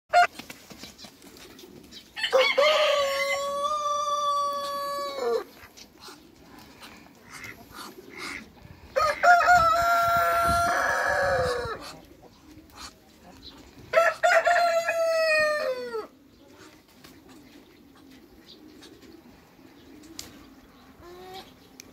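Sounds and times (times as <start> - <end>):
roosters crowing: 2.2 - 5.6, 8.9 - 11.8, 13.9 - 16.2.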